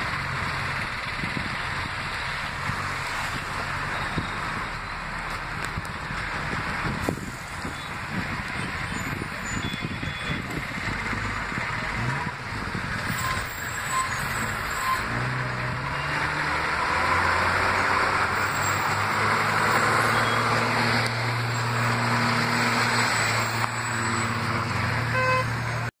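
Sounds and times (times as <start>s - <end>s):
city traffic noise: 0.0s - 25.9s
diesel bus engine running: 0.0s - 25.9s
horn-like tone: 25.1s - 25.6s.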